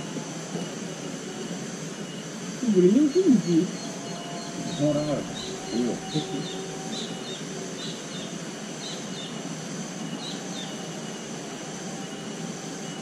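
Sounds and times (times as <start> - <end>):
bird chirping: 2.1 - 11.2.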